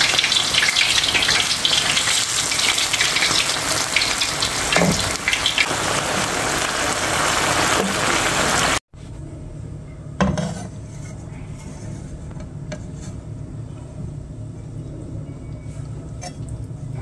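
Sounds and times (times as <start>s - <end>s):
fish sizzling in oil: 0.0s - 8.8s
sauce simmering: 0.0s - 8.8s.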